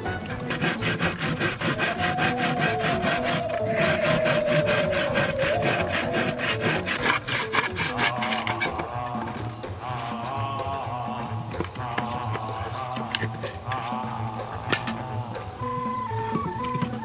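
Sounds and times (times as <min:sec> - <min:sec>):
hand saw cutting wood: 0:00.0 - 0:10.4, 0:11.0 - 0:17.0.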